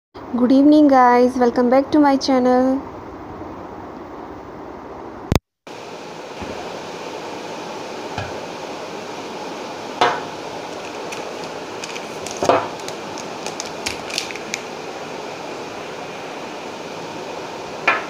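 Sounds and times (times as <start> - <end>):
plastic bag rustling: 10.4 - 14.8.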